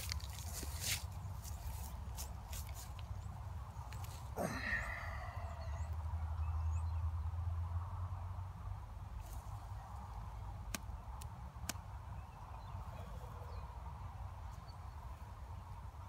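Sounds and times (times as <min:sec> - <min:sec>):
footsteps in dry leaves: 0:00.0 - 0:03.2.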